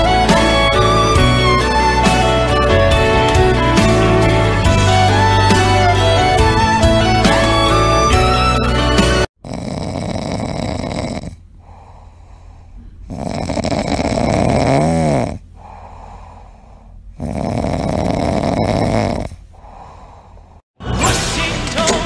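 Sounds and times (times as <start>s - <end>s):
kitten snoring: 9.3s - 20.6s.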